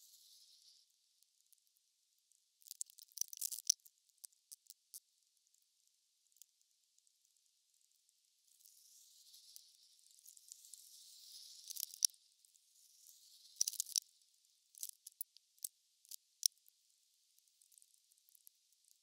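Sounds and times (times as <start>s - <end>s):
faint scraping and rustling: 0.0s - 1.0s, 8.5s - 16.4s.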